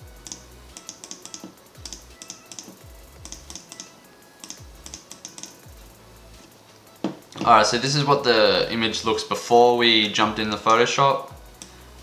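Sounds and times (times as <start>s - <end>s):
soft music with thumping beat: 0.0s - 12.0s
computer keyboard keys clicking: 0.2s - 5.7s.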